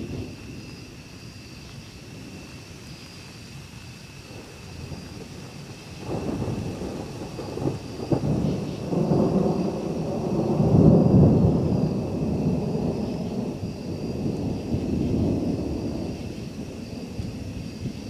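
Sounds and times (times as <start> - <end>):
rolling thunder rumble: 0.0 - 2.9, 4.0 - 18.0
thunder cracks: 4.3 - 18.0.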